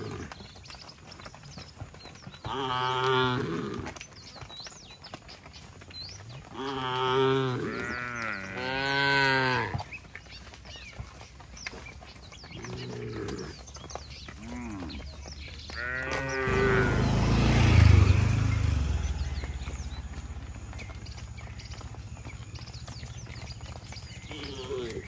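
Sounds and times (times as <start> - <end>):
cattle mooing: 2.5 - 3.9, 6.5 - 9.8, 15.7 - 18.2, 24.2 - 25.0
loud low rumbling: 16.3 - 23.6.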